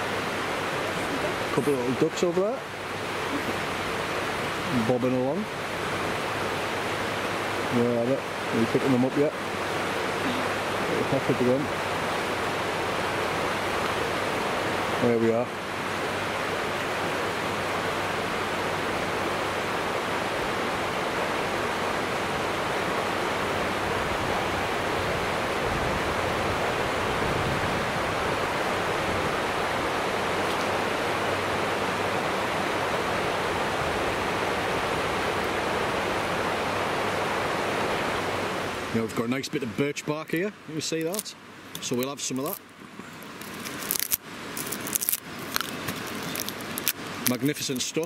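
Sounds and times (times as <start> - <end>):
river rushing over rapids: 0.0 - 48.0.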